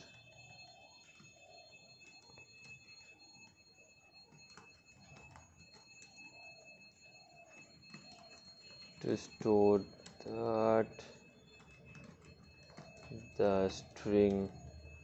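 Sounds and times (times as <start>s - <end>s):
bell ringing: 2.2s - 15.0s
keyboard keys clicking: 4.2s - 6.6s, 7.4s - 15.0s.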